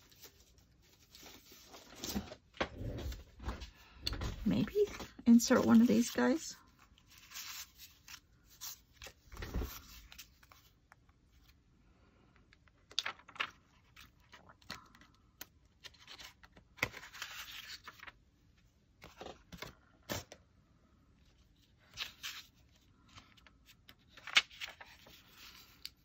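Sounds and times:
paper rustling and sliding: 0:15.8 - 0:18.2, 0:21.9 - 0:25.9.

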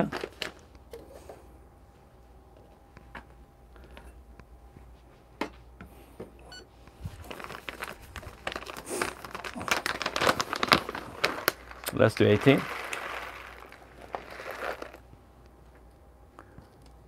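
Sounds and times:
bag crinkling: 0:00.0 - 0:00.6, 0:07.0 - 0:15.1.

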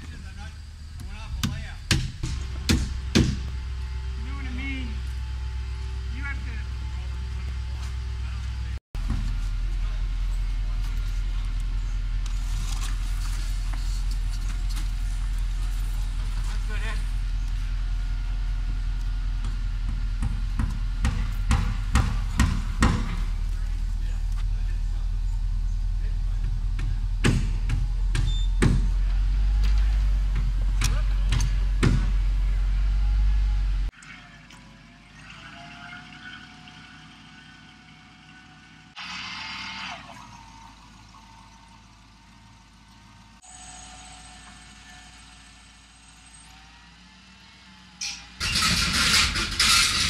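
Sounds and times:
low engine hum: 0:00.0 - 0:48.0
hammer striking wood: 0:01.4 - 0:03.5, 0:19.9 - 0:23.3, 0:26.8 - 0:29.0, 0:30.3 - 0:32.2.

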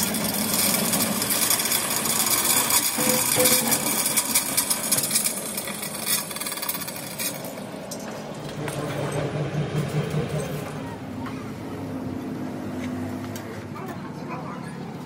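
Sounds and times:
chain hoist rattling: 0:00.0 - 0:10.8
low engine hum: 0:07.3 - 0:15.0.

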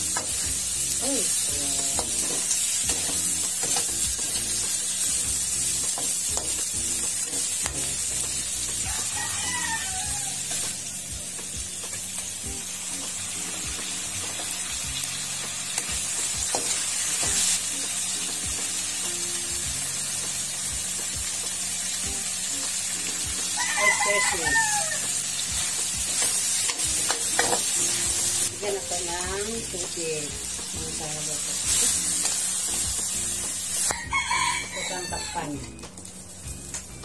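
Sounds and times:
food sizzling in a wok: 0:00.0 - 0:37.0
rooster crowing: 0:08.8 - 0:10.6, 0:23.6 - 0:25.2, 0:33.9 - 0:35.6.

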